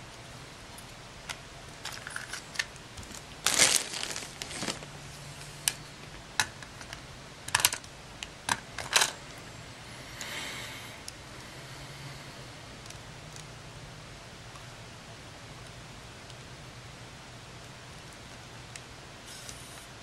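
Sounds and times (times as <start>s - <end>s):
plastic parts and tools clicking: 6.4s - 7.9s.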